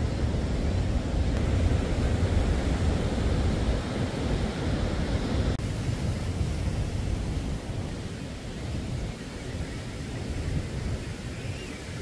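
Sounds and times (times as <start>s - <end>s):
ocean surf on shore: 0.0s - 12.0s
wind on microphone: 0.0s - 12.0s.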